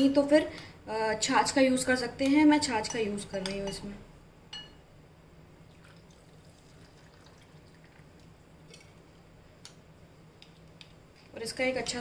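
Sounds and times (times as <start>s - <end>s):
low steady hum: 0.0s - 12.0s
liquid pouring and dripping into bowl: 5.6s - 9.0s.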